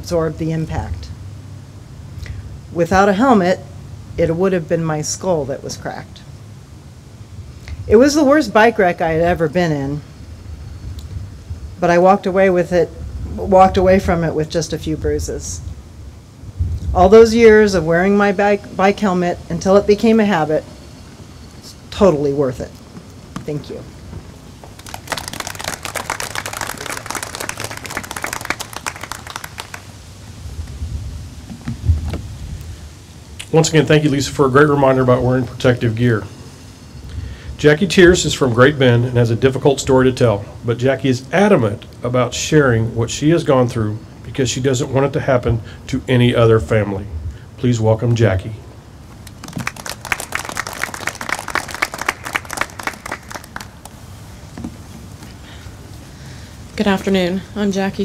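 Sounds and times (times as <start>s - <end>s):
audience clapping: 24.7s - 30.0s, 49.2s - 54.0s.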